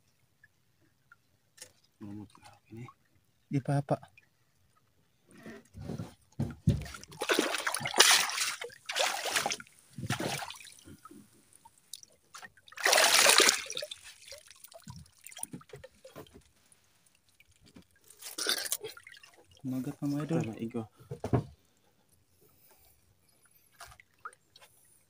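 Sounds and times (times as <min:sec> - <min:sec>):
seawater splashing and trickling: 0:06.6 - 0:20.9.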